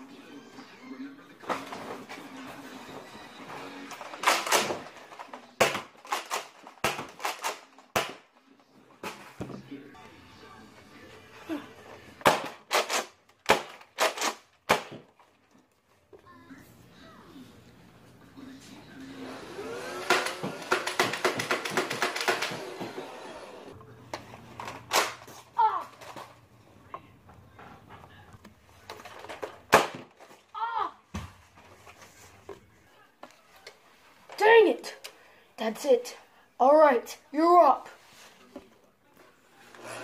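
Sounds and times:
foam dart blasters clacking: 20.0s - 22.9s.

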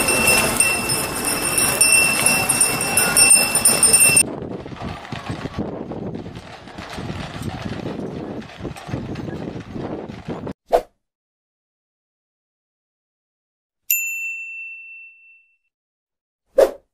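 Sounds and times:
sleigh bells jingling: 0.0s - 4.2s
horse hooves on pavement: 0.0s - 10.6s.

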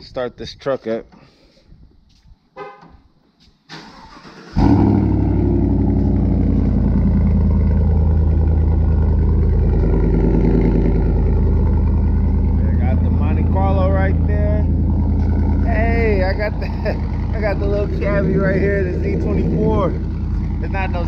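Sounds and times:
engine starter cranking: 3.7s - 5.0s
truck engine idling: 5.3s - 21.0s.

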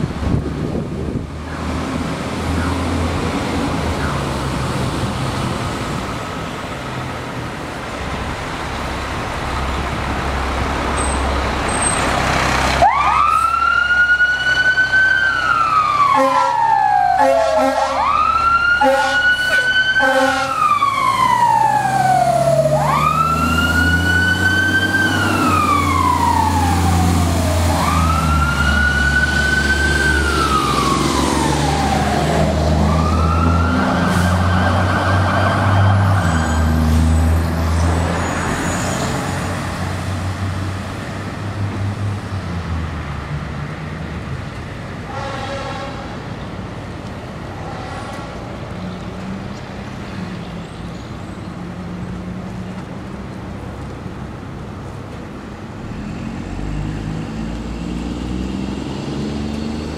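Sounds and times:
truck engine rumbling: 0.0s - 59.9s
fire engine siren wailing: 11.6s - 40.7s
air horn blasts: 16.1s - 16.6s, 17.2s - 18.1s, 18.8s - 20.6s, 45.1s - 46.2s.

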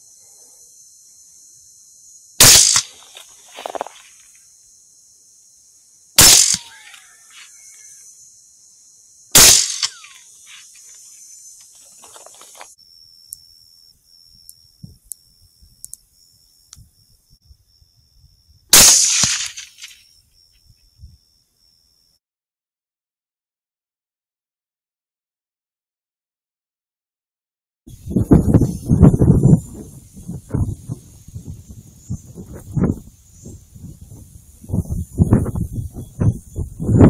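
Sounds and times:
rifle shots echoing: 2.4s - 3.0s, 6.2s - 6.8s, 9.4s - 10.2s, 18.8s - 19.8s.

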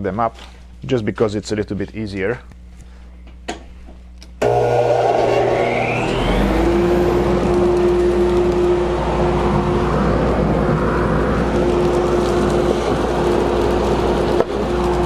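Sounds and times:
dust collector running: 4.4s - 15.0s.

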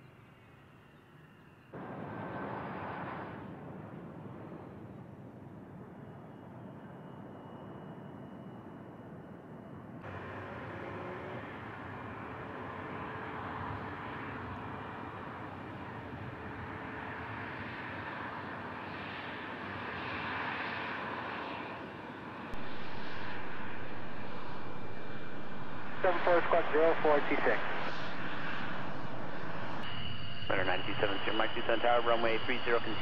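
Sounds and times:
jet engines rushing with high whine: 0.0s - 33.0s.

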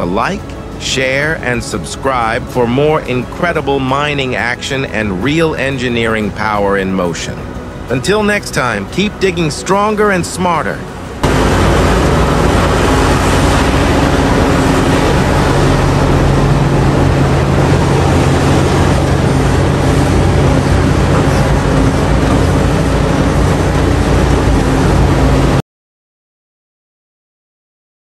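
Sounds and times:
excavator diesel engine droning: 0.0s - 25.6s.

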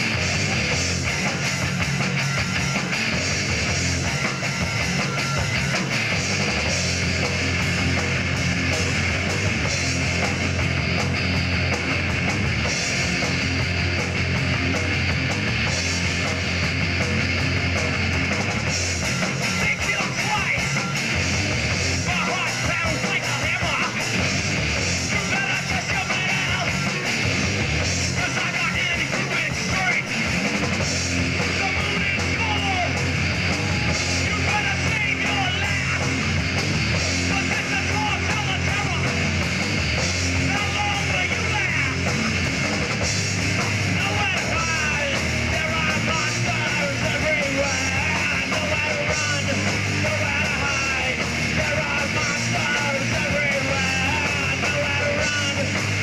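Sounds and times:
drum kit: 0.0s - 56.0s
electric guitar: 0.0s - 56.0s.

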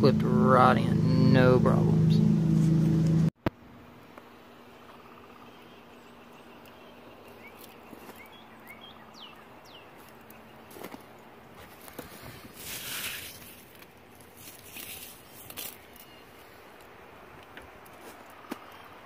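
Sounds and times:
bird chirps: 4.6s - 10.8s
rustling and handling noises: 10.0s - 18.3s.

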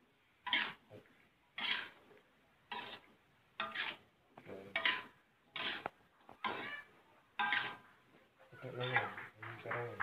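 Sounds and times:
metal spatula scraping a wok: 0.4s - 0.9s, 1.5s - 8.0s.

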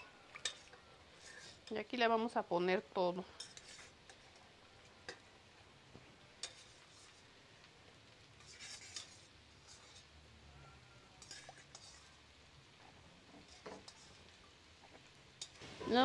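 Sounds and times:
metal spoon clinking: 0.4s - 0.9s.

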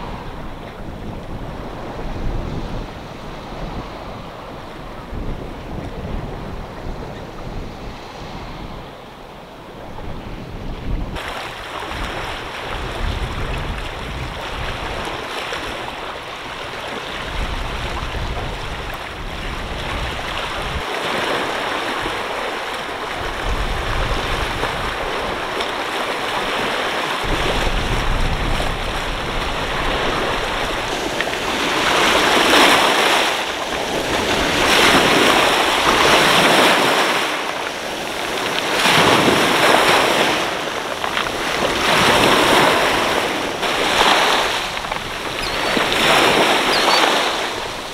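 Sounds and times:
wind buffeting microphone: 0.0s - 47.9s
waves washing over pebbles: 11.1s - 47.9s.

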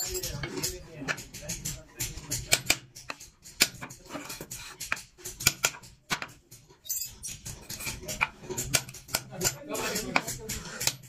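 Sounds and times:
hammer tapping chisel into wood: 0.4s - 6.4s.

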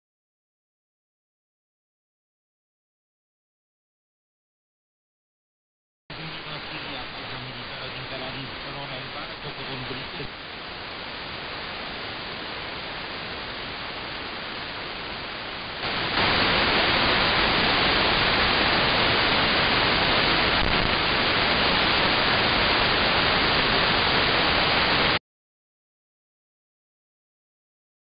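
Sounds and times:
radio static hiss: 6.1s - 25.2s.

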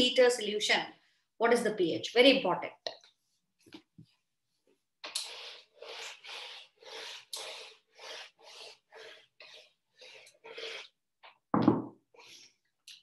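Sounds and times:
duster rubbing whiteboard: 5.3s - 11.0s.

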